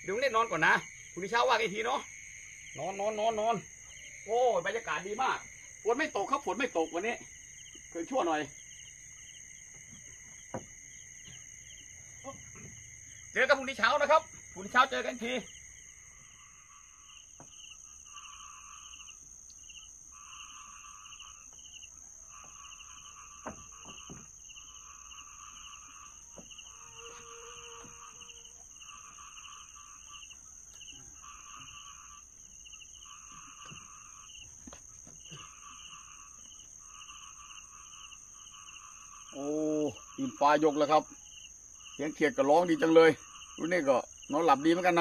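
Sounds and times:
frogs calling: 0.0 - 45.0
high-pitched insect drone: 0.0 - 45.0.

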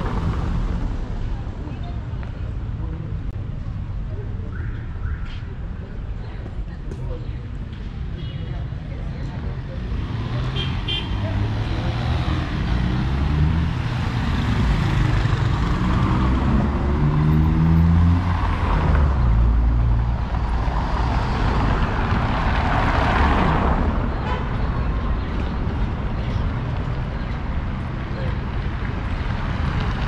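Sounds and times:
passing traffic rush: 0.0 - 30.0.

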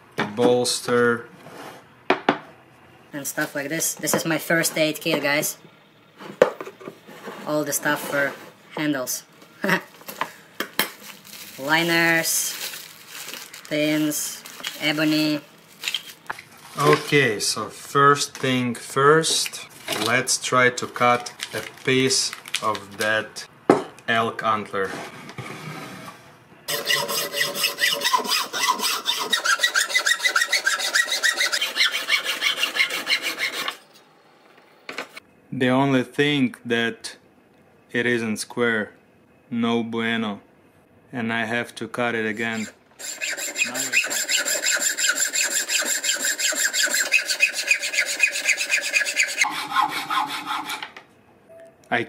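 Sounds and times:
hacksaw cutting antler: 42.6 - 50.9.

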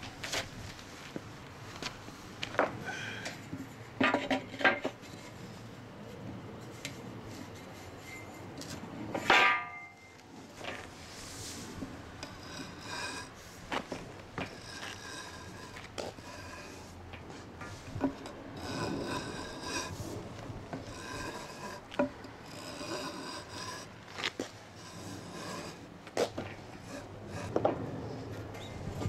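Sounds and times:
hand plane rasping on wood: 12.2 - 16.9, 18.0 - 27.7.

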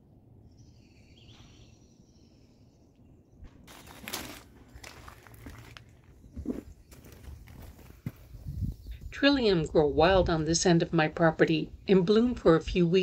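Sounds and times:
rustling: 3.6 - 8.2
footsteps on grass and soil: 3.6 - 8.7.

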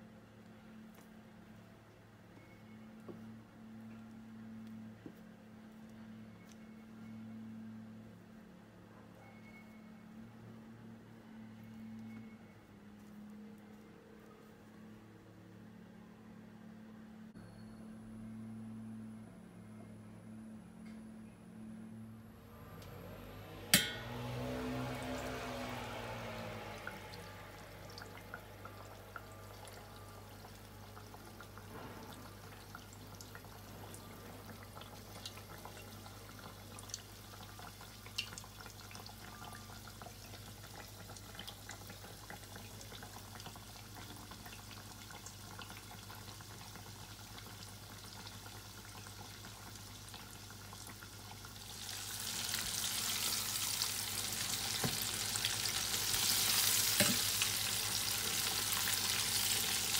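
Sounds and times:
chicken deep-frying in oil: 23.2 - 59.9.

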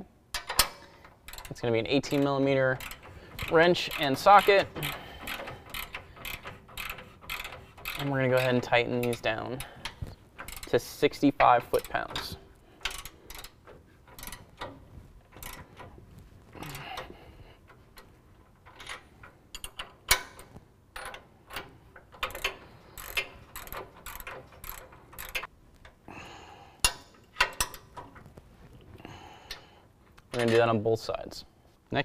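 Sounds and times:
ratchet wrench clicking: 0.3 - 15.9, 21.0 - 25.5.

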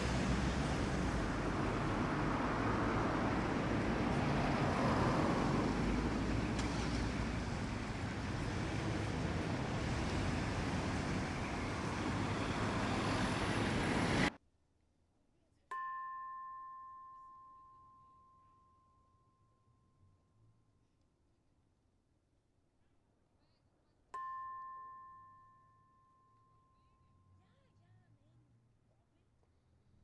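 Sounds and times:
city street traffic: 0.0 - 14.4.

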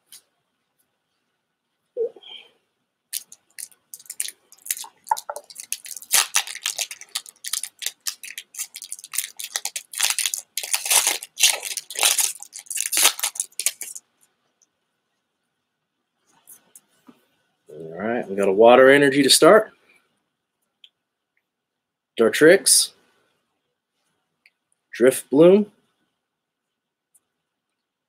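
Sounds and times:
foil wrapper crinkling and tearing: 3.1 - 14.0.

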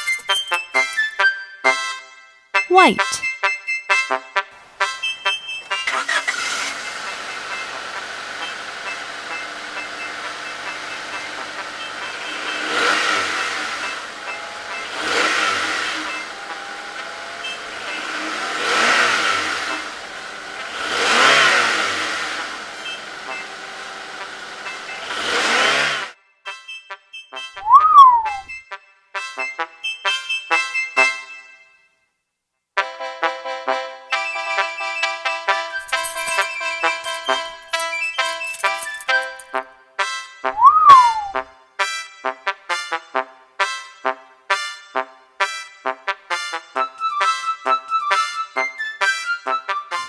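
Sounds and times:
car engine revving: 12.2 - 26.1.

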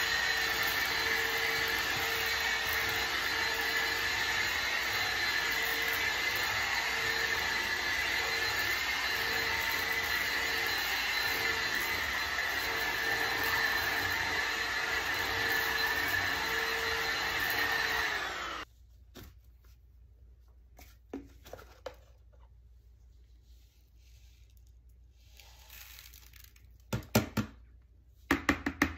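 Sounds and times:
stick vacuum running: 0.0 - 18.6.

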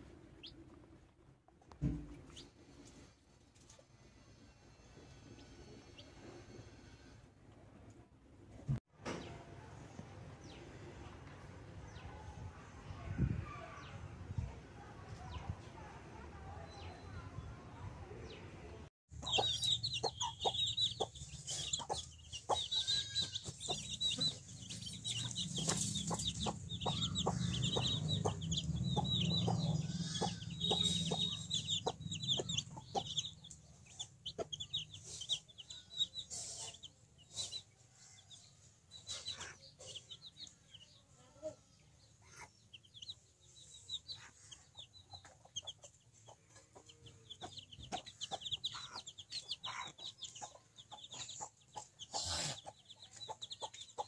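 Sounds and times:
chicks cheeping: 0.4 - 0.6, 19.1 - 54.0
hen clucking: 19.2 - 37.6, 44.0 - 54.0.

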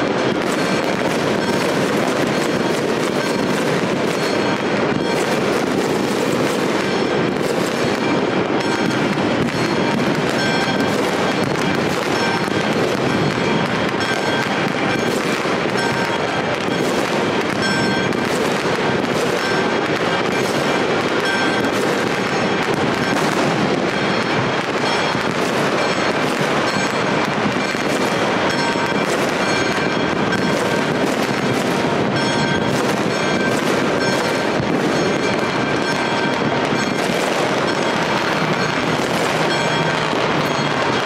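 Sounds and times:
fireworks and firecrackers crackling: 0.0 - 41.0.

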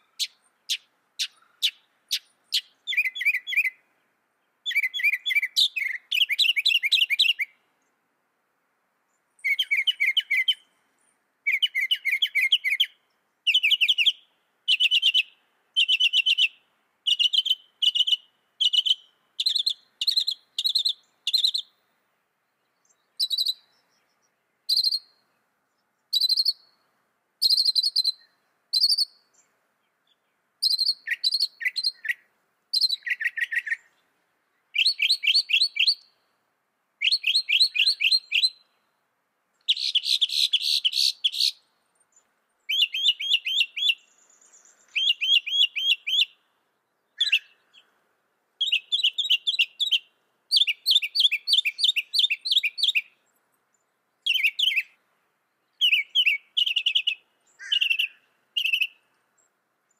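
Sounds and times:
mockingbird singing: 0.0 - 3.8, 4.6 - 7.6, 9.4 - 10.7, 11.5 - 21.7, 22.7 - 25.2, 26.1 - 26.7, 27.4 - 29.4, 30.6 - 33.9, 34.7 - 36.1, 37.0 - 38.7, 39.6 - 41.6, 42.7 - 46.4, 47.1 - 47.9, 48.6 - 53.2, 54.2 - 55.0, 55.6 - 59.0.

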